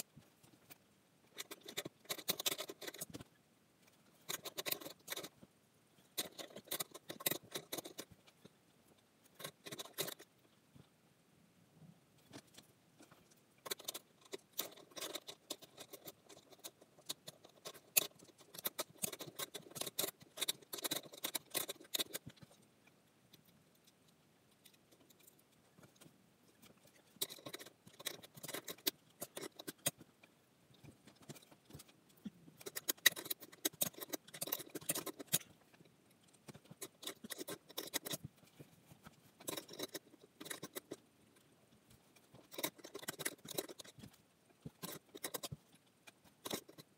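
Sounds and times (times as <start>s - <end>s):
small clicks and rattles of hardware: 0.0s - 10.6s, 12.2s - 46.9s.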